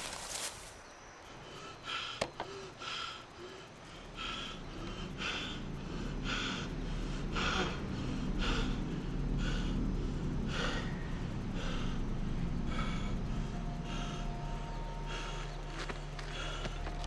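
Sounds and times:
heavy rhythmic breathing: 0:01.2 - 0:17.0
low rumble: 0:03.8 - 0:17.0.

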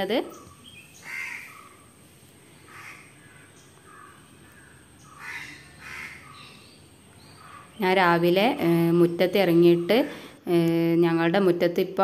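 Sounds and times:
crows cawing: 0:01.0 - 0:07.8.

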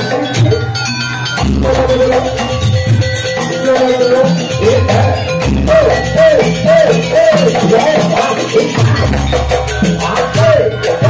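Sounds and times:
high melody over drums: 0:00.0 - 0:11.0.

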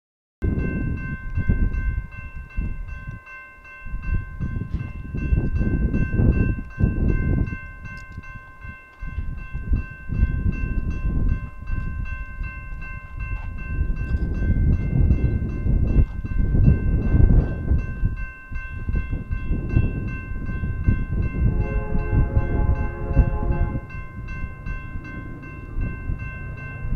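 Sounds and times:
railroad crossing bell ringing: 0:00.4 - 0:26.9
low rumbling noise: 0:19.6 - 0:26.9.

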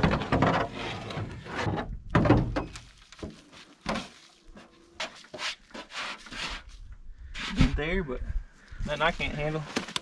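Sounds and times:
sheet metal thunks and knocks: 0:01.7 - 0:02.7.

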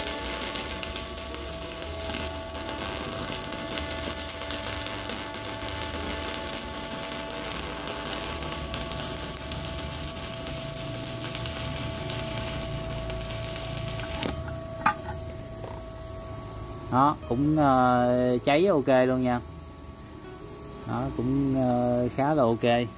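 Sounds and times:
welding arc crackling: 0:00.0 - 0:15.8.

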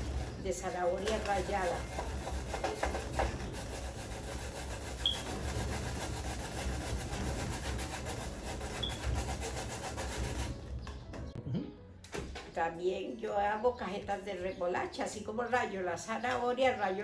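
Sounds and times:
carrot rasping on metal grater: 0:01.2 - 0:10.6.

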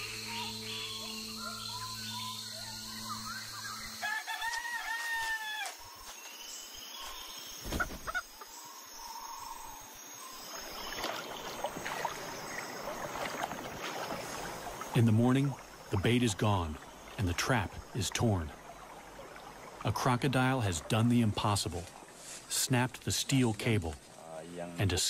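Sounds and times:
night chirps: 0:00.0 - 0:04.2
rooster crowing: 0:04.0 - 0:05.8
splashy rustling: 0:10.6 - 0:14.9.

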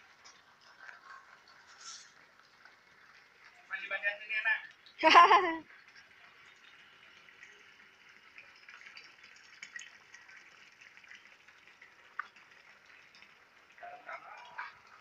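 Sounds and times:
faint water trickle: 0:00.0 - 0:15.0
small drip-like ticks: 0:00.0 - 0:15.0.

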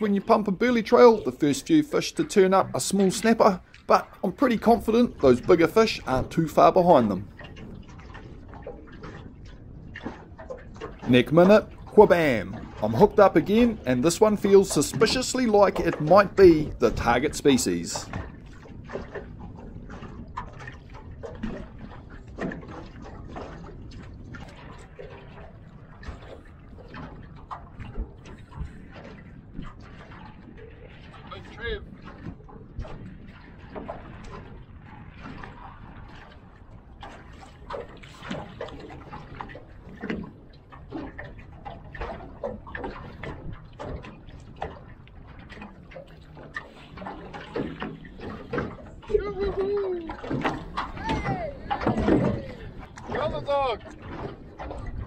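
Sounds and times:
waves lapping against boat hull: 0:00.0 - 0:55.0.

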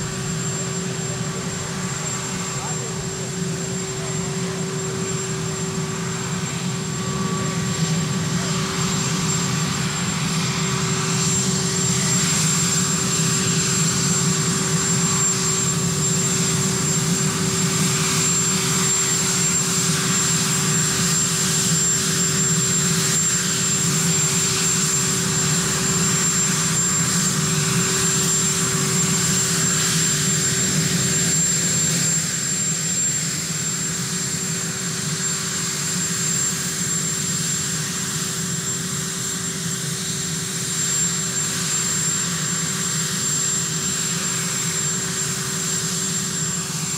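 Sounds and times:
engine and rotor rumble: 0:00.0 - 0:46.9
helicopter turbine whine: 0:00.0 - 0:46.9.

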